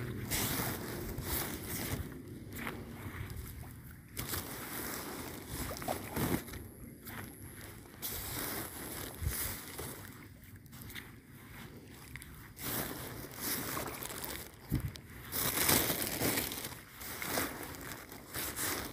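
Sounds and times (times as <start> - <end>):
wind buffeting microphone: 0.0 - 4.2, 8.9 - 9.7, 14.6 - 15.1.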